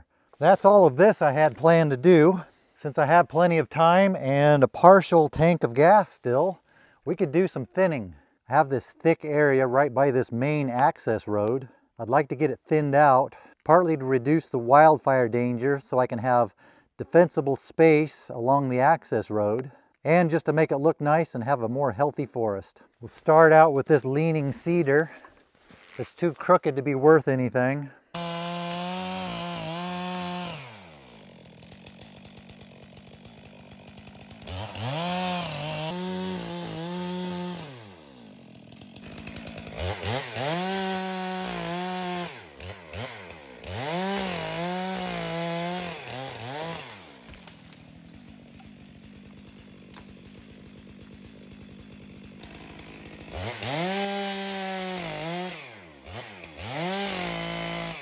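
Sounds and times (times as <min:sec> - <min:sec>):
chainsaw revving and idling: 0:00.3 - 0:04.7, 0:28.1 - 0:58.0.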